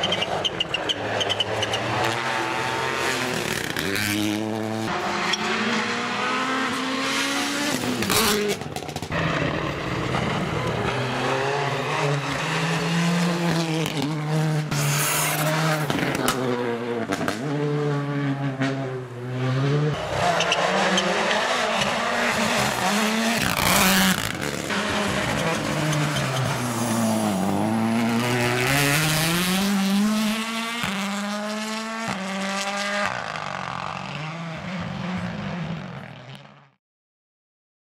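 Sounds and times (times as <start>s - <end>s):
rally car engines revving hard: 0.0s - 36.8s.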